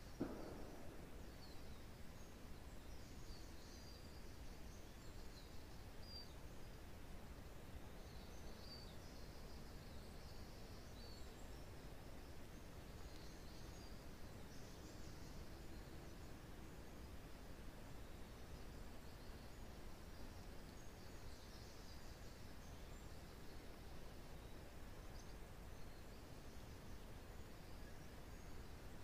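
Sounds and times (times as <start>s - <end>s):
faint wind in woodland: 0.0s - 29.0s
small birds chirping: 7.6s - 29.0s.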